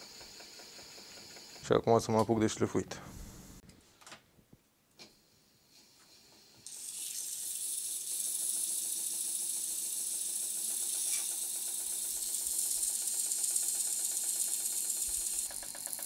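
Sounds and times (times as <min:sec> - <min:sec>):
electric motor humming: 0:06.6 - 0:16.0.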